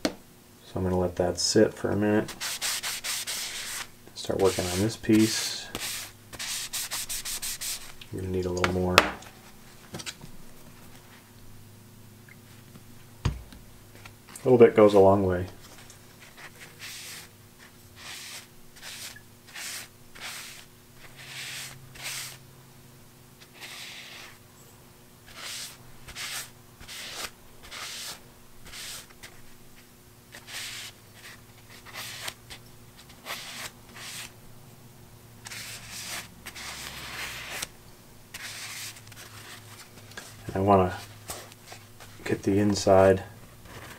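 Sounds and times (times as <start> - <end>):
paper towel rubbing wood: 2.3 - 8.0, 16.2 - 17.3, 18.0 - 22.4, 23.5 - 24.4, 25.3 - 29.4, 35.4 - 37.7.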